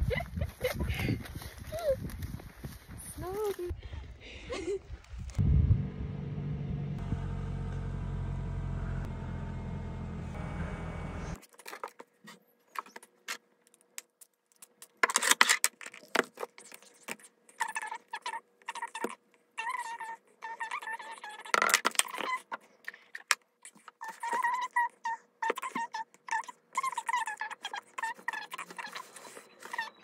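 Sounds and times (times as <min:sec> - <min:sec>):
vehicle engine running: 0:05.4 - 0:11.4.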